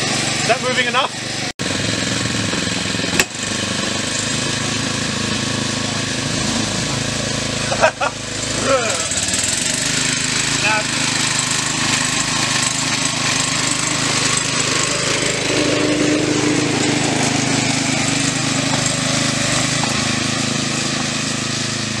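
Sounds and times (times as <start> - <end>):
miniature locomotive engine chugging: 0.0 - 22.0.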